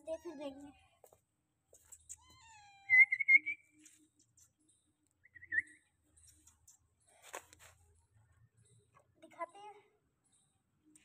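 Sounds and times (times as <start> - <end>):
cat meowing: 2.1 - 3.1.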